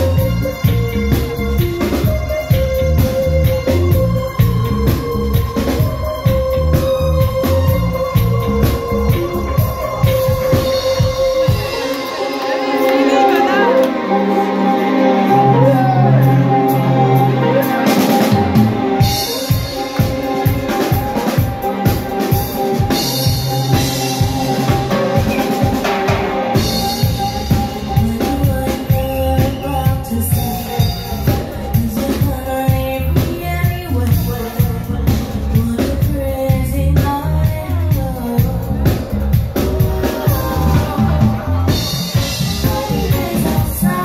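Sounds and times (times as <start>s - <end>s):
drum kit steady beat: 0.0s - 13.7s, 16.7s - 44.0s
reggae band playing: 0.0s - 44.0s
woman singing: 26.6s - 44.0s.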